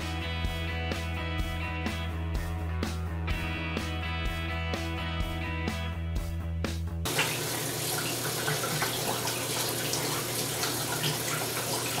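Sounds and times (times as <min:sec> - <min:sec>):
background music: 0:00.0 - 0:07.1
hands splashing and rubbing: 0:07.1 - 0:12.0
tap running into sink: 0:07.1 - 0:12.0.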